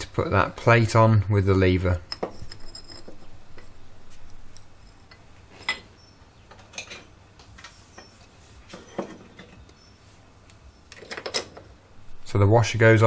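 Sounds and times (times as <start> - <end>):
small metal parts scraping: 2.0 - 6.0.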